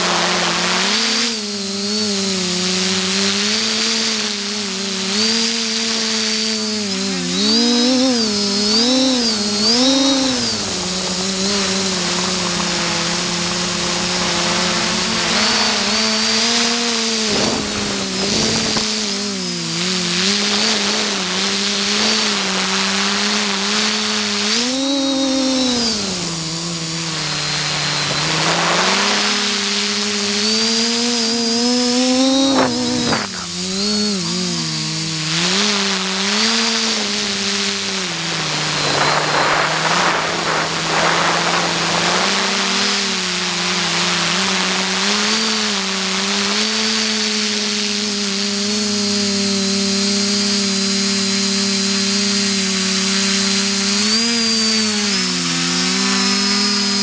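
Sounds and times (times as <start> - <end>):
drone propellers buzzing: 0.0 - 57.0
wind rushing: 38.1 - 43.2.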